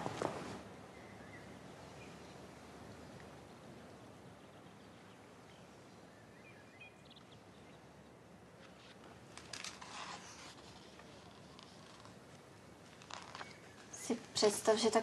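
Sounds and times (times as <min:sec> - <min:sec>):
soft rustle: 0:00.0 - 0:00.7, 0:08.5 - 0:15.0.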